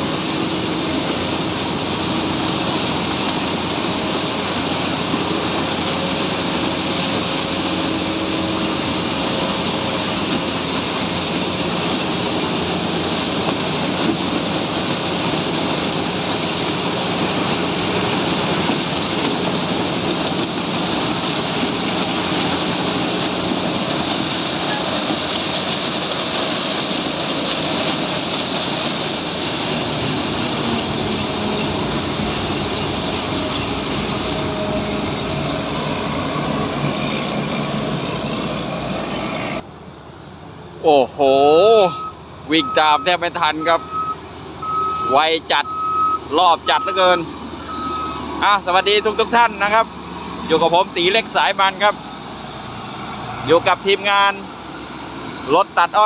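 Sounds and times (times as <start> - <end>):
diesel engine roaring under load: 0.0 - 56.0.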